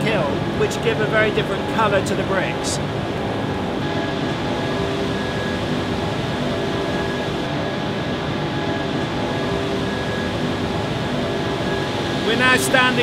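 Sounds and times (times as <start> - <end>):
industrial kiln machinery drone: 0.0 - 13.0.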